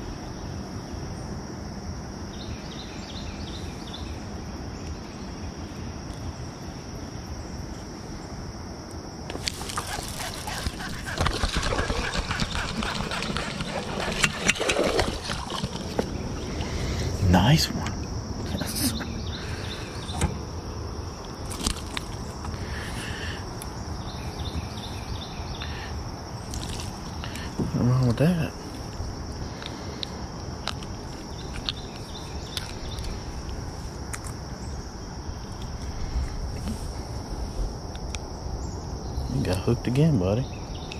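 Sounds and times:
insects chorus: 0.0s - 40.9s
fish splashing: 9.3s - 17.2s.

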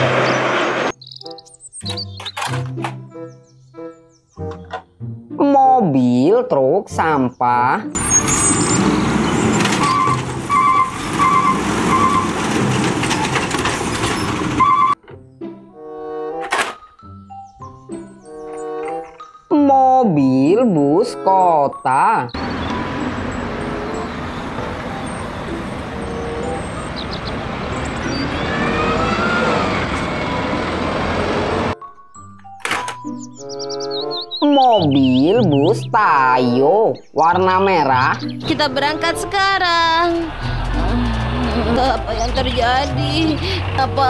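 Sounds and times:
steady traffic noise: 0.0s - 1.0s, 8.0s - 15.0s, 22.3s - 31.8s, 38.6s - 44.0s
garbage truck engine running: 8.0s - 15.0s, 22.4s - 31.8s, 38.4s - 44.0s.

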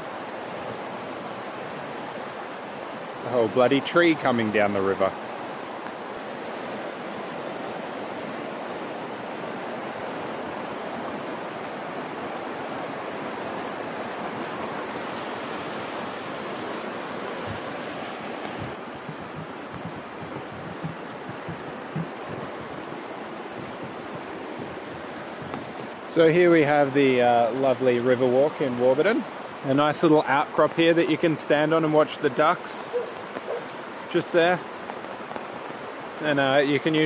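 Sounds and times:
river water rushing: 0.0s - 37.0s
low thumps: 17.4s - 17.8s, 18.4s - 26.1s.

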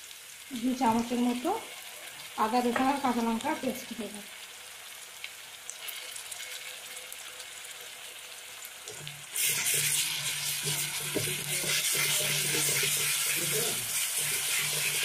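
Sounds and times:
paste sizzling in hot oil: 0.0s - 15.0s
metal spatula stirring: 9.4s - 15.0s.

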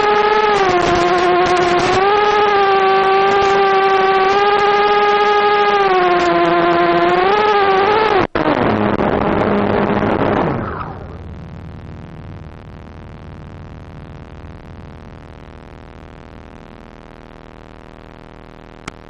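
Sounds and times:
drone motors whining: 0.0s - 17.4s
drone crashing into grass: 8.4s - 14.7s.

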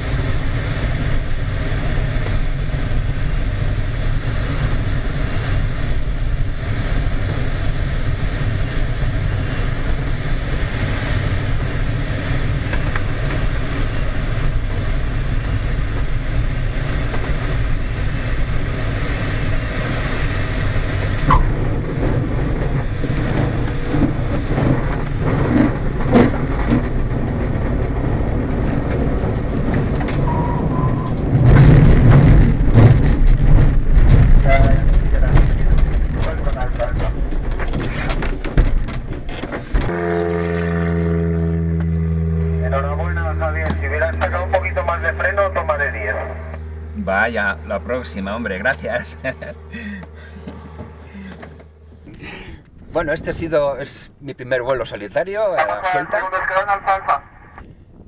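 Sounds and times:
wheel bumps and rattles: 21.0s - 30.4s, 31.0s - 39.9s.

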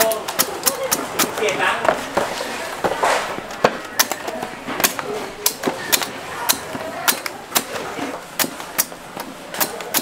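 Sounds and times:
blade chopping coconuts: 3.6s - 10.0s.

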